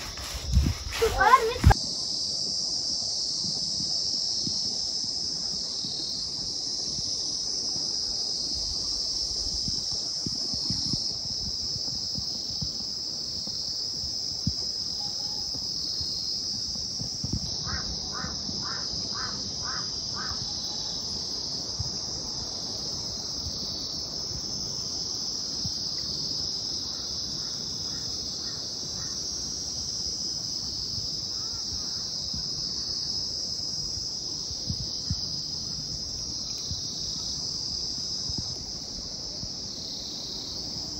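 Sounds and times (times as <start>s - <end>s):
high-pitched insect chorus: 0.0s - 40.9s.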